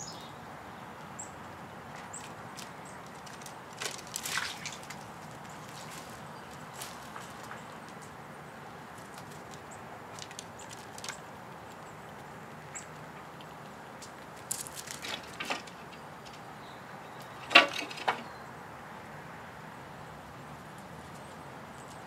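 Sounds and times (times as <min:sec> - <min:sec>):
seeds and shells clicking and rustling: 0:02.0 - 0:08.2, 0:09.0 - 0:11.9, 0:14.0 - 0:15.6.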